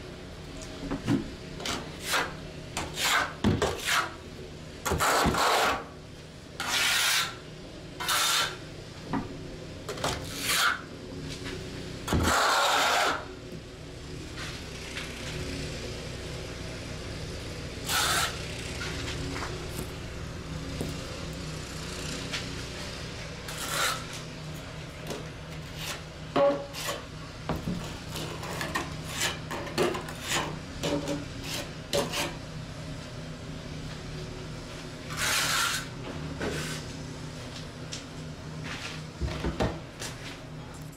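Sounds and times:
steady low hum: 0.0s - 40.9s
scraping on concrete: 1.6s - 4.2s, 4.9s - 6.0s, 6.6s - 7.4s, 8.0s - 8.6s, 9.9s - 13.3s, 17.8s - 19.9s, 22.0s - 24.3s, 25.1s - 32.4s, 35.0s - 37.6s.

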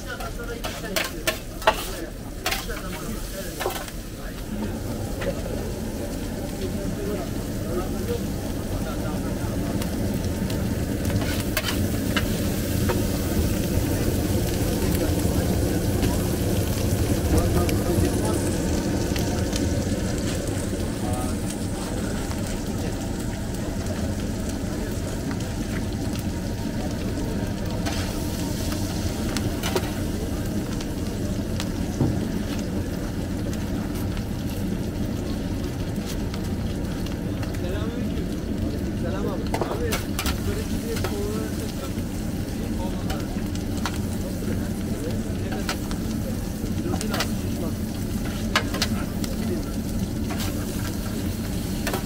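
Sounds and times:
meat sizzling on a griddle: 0.0s - 52.0s
steady low rumble: 4.0s - 37.6s.

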